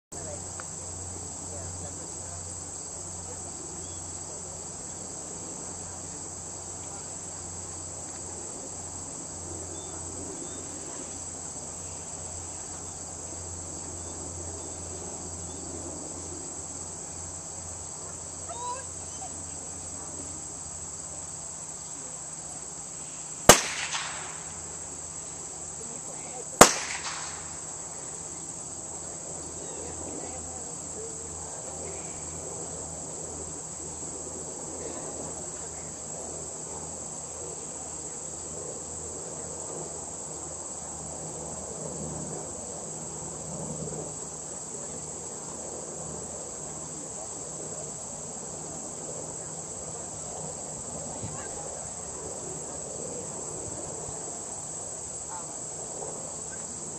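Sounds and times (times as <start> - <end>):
insects chirring: 0.1 - 56.9
gunshots: 23.5 - 24.5, 26.6 - 27.5.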